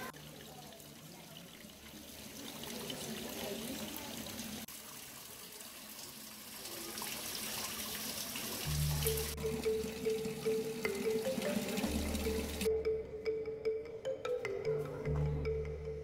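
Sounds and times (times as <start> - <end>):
water trickling over pebbles: 0.0 - 12.7
music: 8.7 - 16.0.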